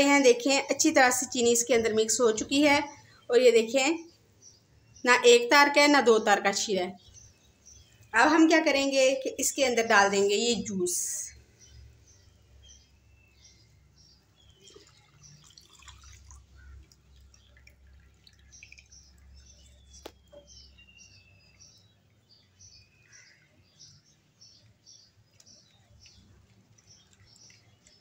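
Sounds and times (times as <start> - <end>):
liquid pouring and stirring: 14.4 - 20.9, 24.0 - 28.0.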